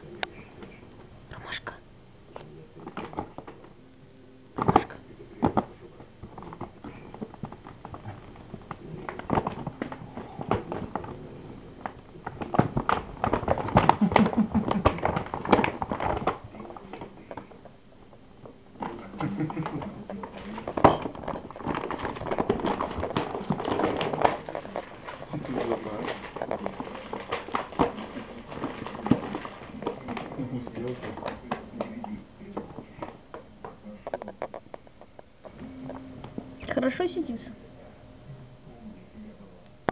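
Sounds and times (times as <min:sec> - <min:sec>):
paper bag rustling and crinkling: 0:18.9 - 0:32.0.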